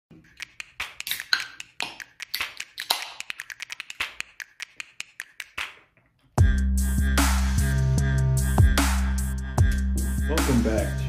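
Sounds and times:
fingers tapping on metal can: 0.4s - 5.8s.

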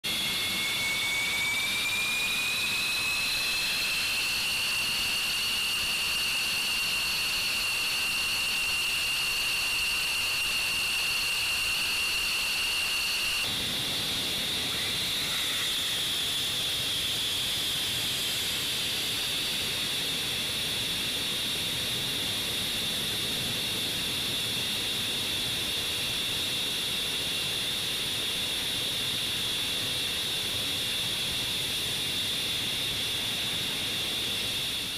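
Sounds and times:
jet engines whining: 0.0s - 34.9s.

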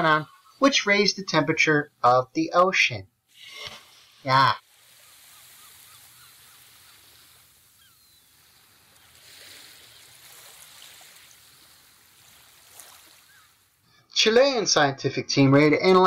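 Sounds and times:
water washing on shore: 3.3s - 13.8s
faint bird chirps: 4.9s - 10.5s.

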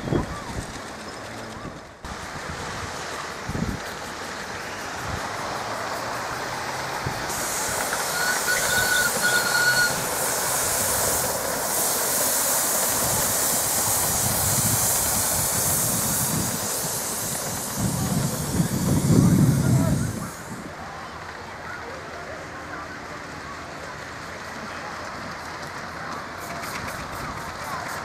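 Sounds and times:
steam train hissing: 0.0s - 28.0s
train wheels on rails: 0.0s - 28.0s
brief high-pitched tone: 8.1s - 10.0s.

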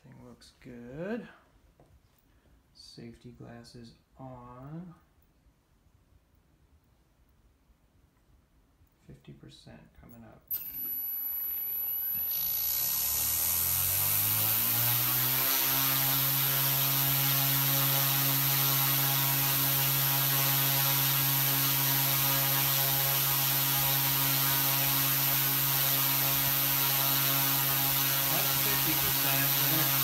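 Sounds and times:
rc helicopter motor whining: 10.5s - 30.0s.

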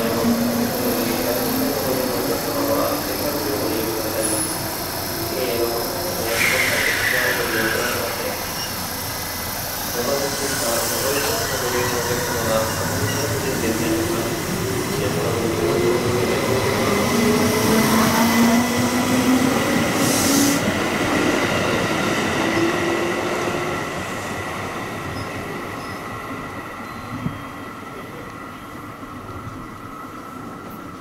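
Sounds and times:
train traction motors whining: 0.0s - 21.8s.

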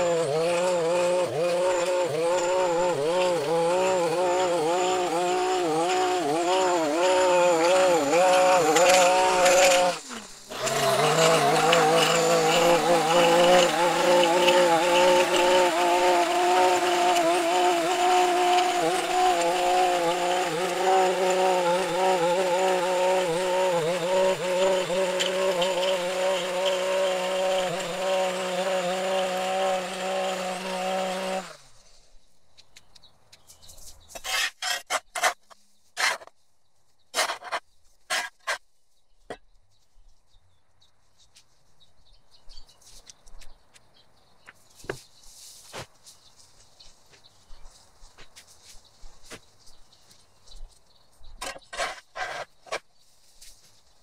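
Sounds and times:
edger two-stroke engine running: 0.0s - 31.7s.

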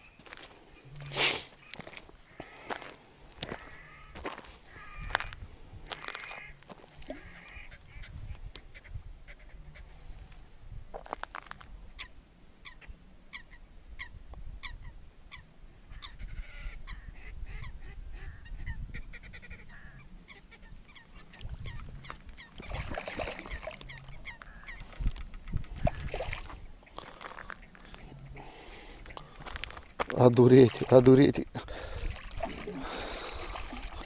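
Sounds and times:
birds calling: 0.0s - 10.3s, 11.6s - 34.0s
fish splashing at surface: 22.6s - 23.9s, 32.0s - 34.0s.

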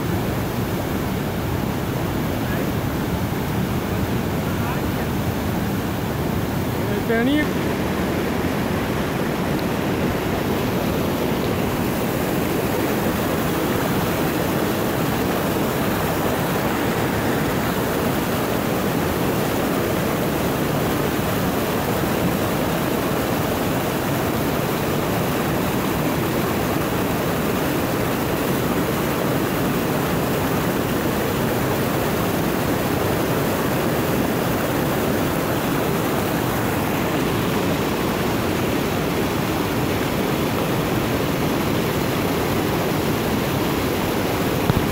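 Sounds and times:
river rapids rushing: 0.0s - 44.9s.

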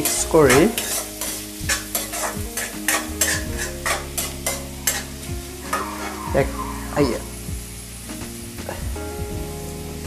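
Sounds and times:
spatula scraping a wok: 0.0s - 7.4s
vegetables sizzling: 0.0s - 10.0s.

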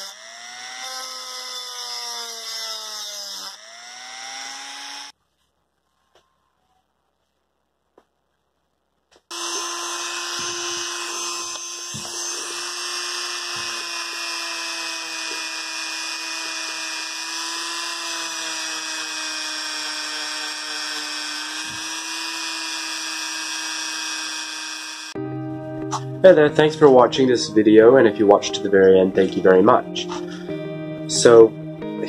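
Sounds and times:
rotary tool whining: 0.0s - 5.2s, 9.3s - 25.2s.

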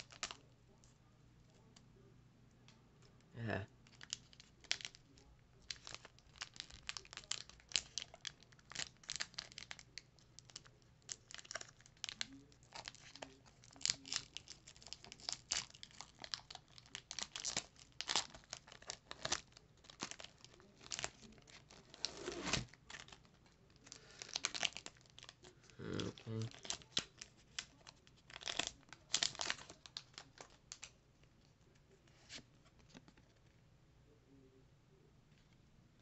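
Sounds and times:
foil wrapper crinkling and tearing: 0.0s - 0.5s, 3.8s - 30.9s.

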